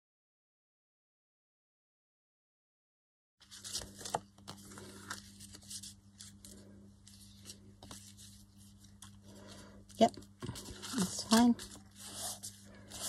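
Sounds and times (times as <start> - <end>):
paper rustling: 3.4 - 13.0
steady low hum: 3.4 - 13.0.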